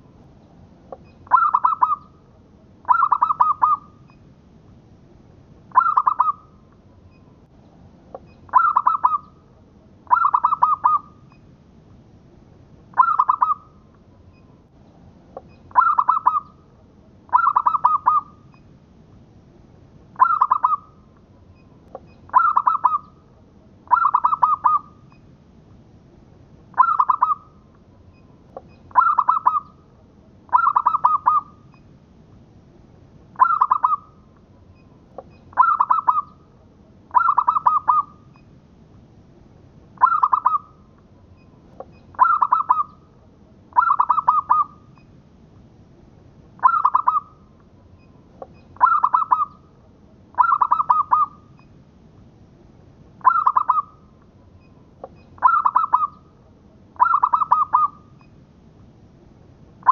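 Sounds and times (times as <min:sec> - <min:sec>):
dove cooing: 0:01.3 - 0:02.1, 0:02.8 - 0:03.9, 0:05.7 - 0:06.5, 0:08.5 - 0:09.3, 0:10.1 - 0:11.1, 0:13.0 - 0:13.7, 0:15.7 - 0:16.6, 0:17.3 - 0:18.4, 0:20.2 - 0:20.9, 0:22.3 - 0:23.2, 0:23.9 - 0:24.9, 0:26.7 - 0:27.5, 0:28.9 - 0:29.8, 0:30.5 - 0:31.6, 0:33.4 - 0:34.2, 0:35.5 - 0:36.4, 0:37.1 - 0:38.2, 0:40.0 - 0:40.8, 0:42.2 - 0:43.0, 0:43.8 - 0:44.8, 0:46.6 - 0:47.4, 0:48.8 - 0:49.6, 0:50.4 - 0:51.4, 0:53.2 - 0:54.0, 0:55.4 - 0:56.2, 0:57.0 - 0:58.0.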